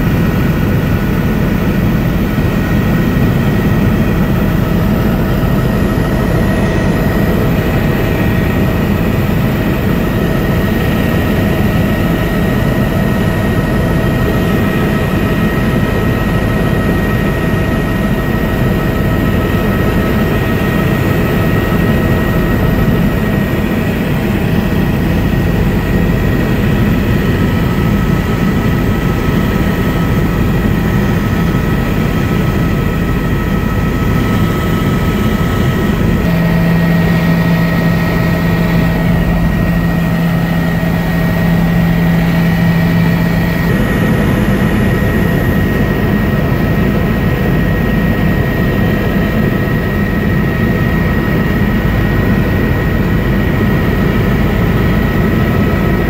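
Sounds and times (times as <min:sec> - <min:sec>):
helicopter engine and rotor drone: 0:00.0 - 0:56.0
thin high whine: 0:18.7 - 0:46.2
low steady hum: 0:20.6 - 0:46.2.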